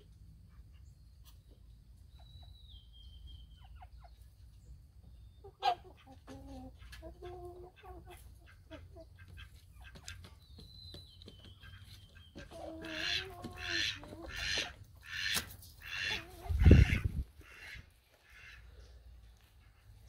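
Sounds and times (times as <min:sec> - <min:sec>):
poultry calling: 0:05.1 - 0:10.4, 0:11.3 - 0:20.0.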